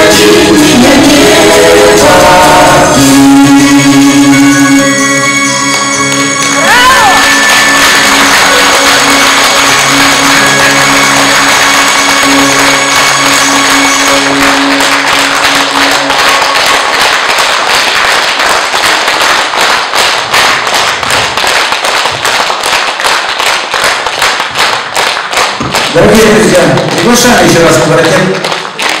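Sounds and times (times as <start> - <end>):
held chord of a song: 0.0 - 17.6
audience applauding: 5.7 - 29.0.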